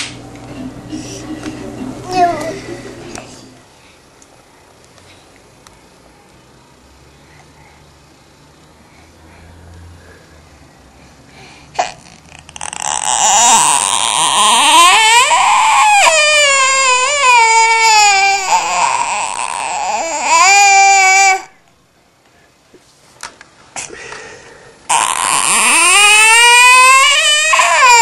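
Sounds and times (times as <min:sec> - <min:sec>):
toddler crying loudly: 0:12.7 - 0:21.6, 0:24.9 - 0:28.0.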